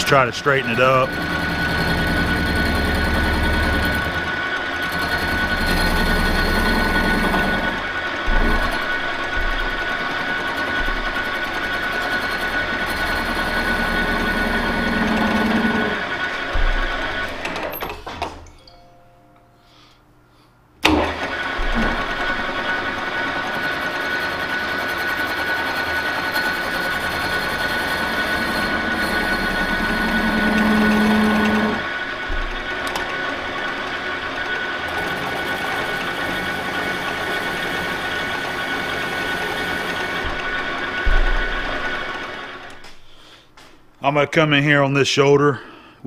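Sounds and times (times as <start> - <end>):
lathe running with mechanical whine: 0.0 - 17.8, 20.8 - 42.9.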